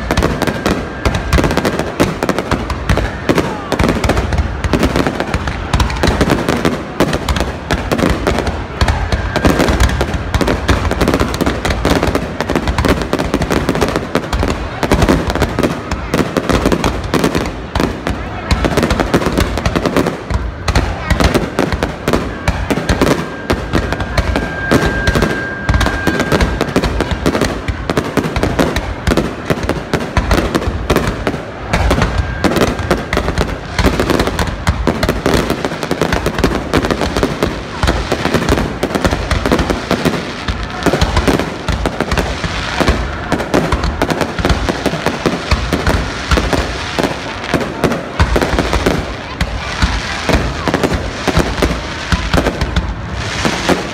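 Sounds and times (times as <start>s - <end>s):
firework whistle: 0.0s - 4.0s, 8.1s - 12.1s, 20.7s - 28.1s, 31.7s - 34.4s
firework bursts and crackle: 0.0s - 53.9s.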